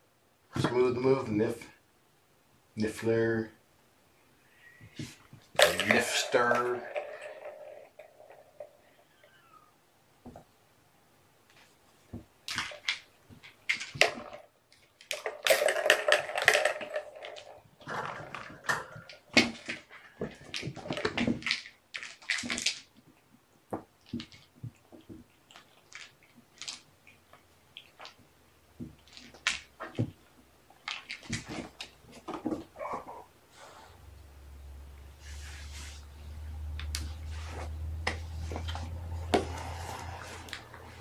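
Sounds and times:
rustling: 0:35.1 - 0:41.0.

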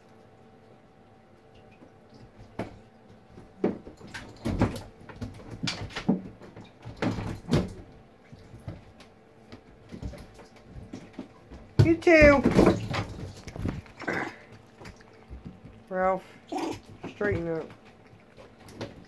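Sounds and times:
monkeys thumping on a bathtub: 0:01.9 - 0:19.0.

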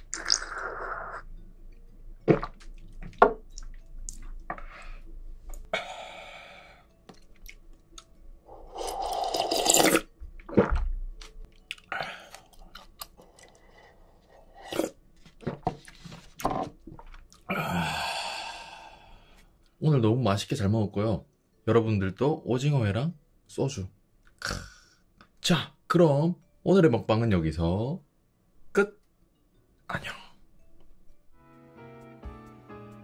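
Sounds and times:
person slurping: 0:00.0 - 0:01.3, 0:08.5 - 0:10.8, 0:11.7 - 0:15.0.

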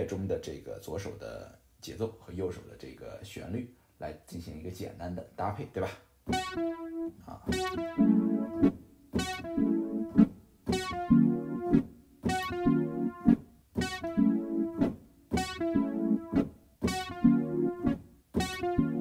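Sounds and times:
electric keyboard chord stabs: 0:06.3 - 0:19.0.

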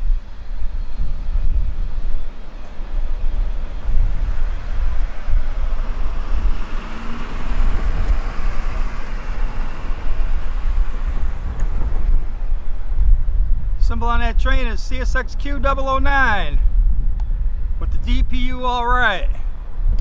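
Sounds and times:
rail roar: 0:00.0 - 0:13.8
freight train wheels rumbling: 0:00.0 - 0:18.0.

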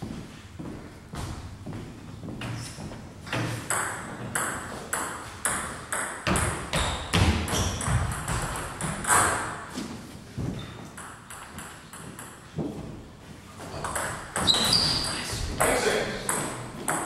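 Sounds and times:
table tennis ball bouncing: 0:03.3 - 0:09.6, 0:10.8 - 0:12.7, 0:13.7 - 0:14.7, 0:15.6 - 0:17.0.

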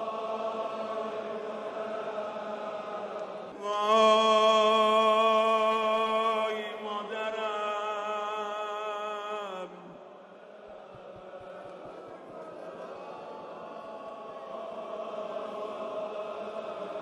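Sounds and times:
man singing through microphone: 0:03.6 - 0:10.1.

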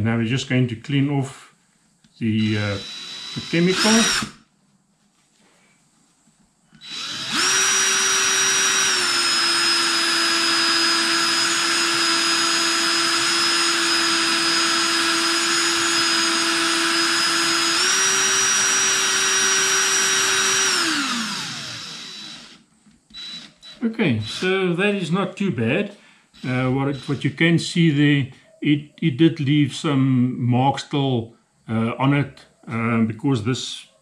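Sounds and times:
cordless drill whining: 0:02.4 - 0:04.4, 0:06.7 - 0:24.8, 0:26.4 - 0:27.4.

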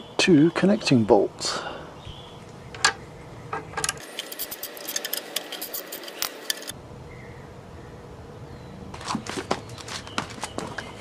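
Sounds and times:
socket wrench clicking: 0:03.6 - 0:06.7.

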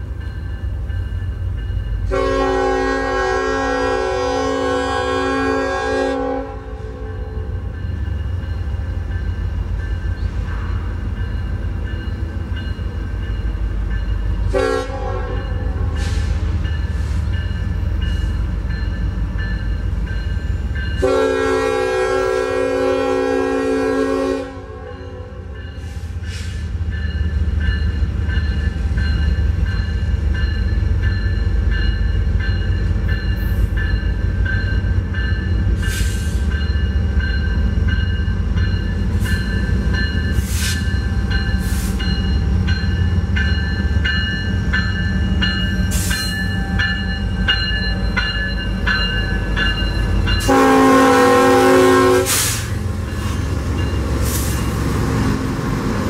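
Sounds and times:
diesel locomotive rumble: 0:00.0 - 0:56.0
diesel locomotive horn blast: 0:02.0 - 0:07.7, 0:14.5 - 0:16.5, 0:21.0 - 0:26.6, 0:50.4 - 0:52.8.

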